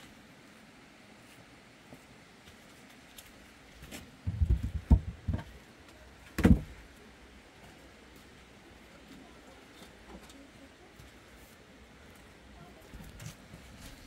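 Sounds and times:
firewood logs knocking on floor: 4.2s - 5.5s, 6.4s - 6.7s.

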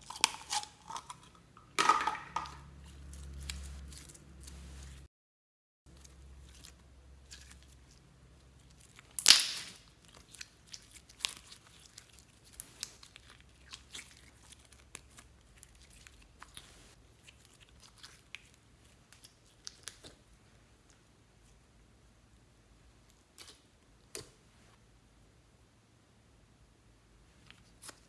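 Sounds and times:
slime tearing with a crackle: 8.6s - 20.3s.

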